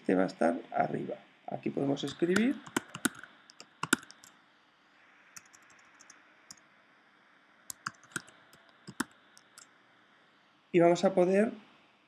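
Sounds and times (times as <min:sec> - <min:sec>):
typing on computer keyboard: 0:02.0 - 0:04.3, 0:05.4 - 0:06.2, 0:07.7 - 0:09.7.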